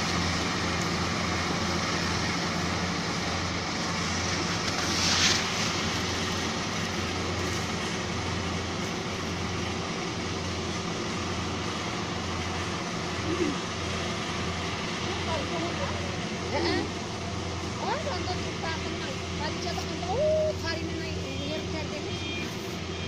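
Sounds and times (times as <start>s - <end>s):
distant combine harvester running: 0.0s - 23.0s
brief hiss: 4.6s - 6.1s.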